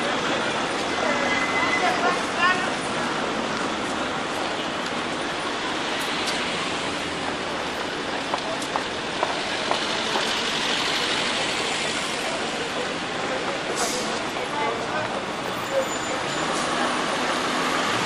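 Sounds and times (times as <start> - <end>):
hiss of passing vehicles: 9.4 - 14.4.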